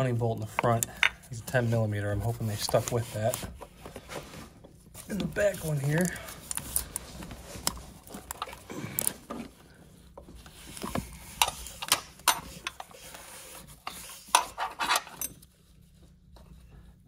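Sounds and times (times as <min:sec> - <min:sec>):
gloved hand rubbing against hoses: 0:01.4 - 0:03.7
wrench clicking and scraping on bolt: 0:13.8 - 0:15.4.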